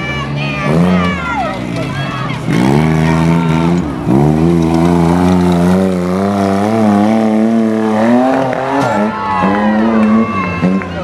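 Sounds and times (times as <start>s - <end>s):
off-road vehicle engine revving: 0.0s - 11.0s.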